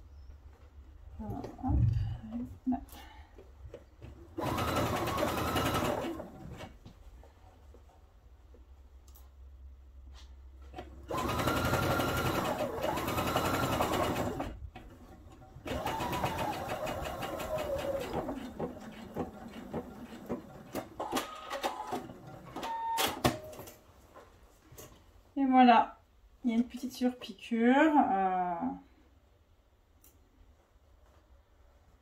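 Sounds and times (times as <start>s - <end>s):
sewing machine stitching: 4.4s - 6.8s, 10.8s - 23.4s.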